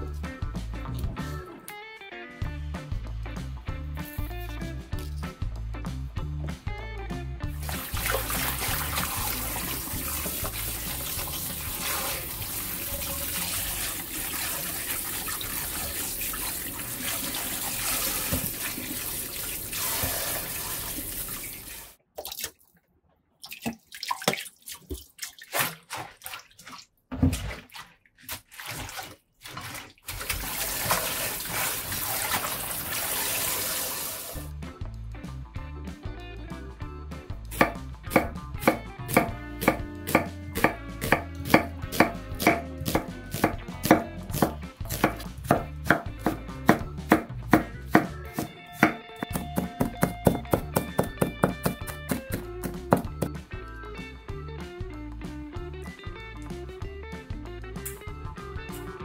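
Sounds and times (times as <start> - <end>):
tap water running into metal bowl: 7.6 - 22.0, 28.6 - 34.5
splashes and drips: 7.6 - 34.5.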